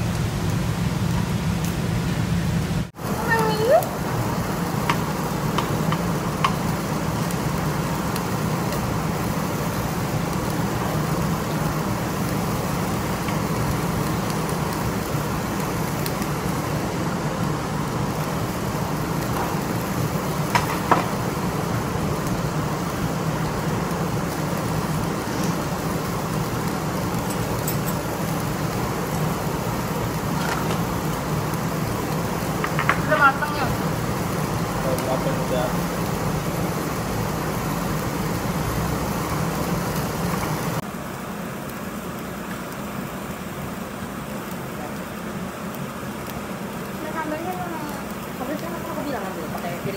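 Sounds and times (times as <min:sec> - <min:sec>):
meat sizzling on gas grill: 0:00.0 - 0:49.9
tableware clinking: 0:27.2 - 0:28.1.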